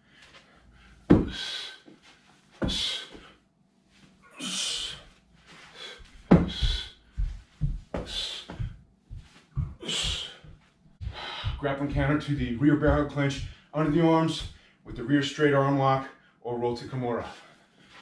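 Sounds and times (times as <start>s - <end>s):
bare feet thudding on carpet: 1.1s - 1.6s, 2.6s - 3.3s, 5.5s - 14.6s.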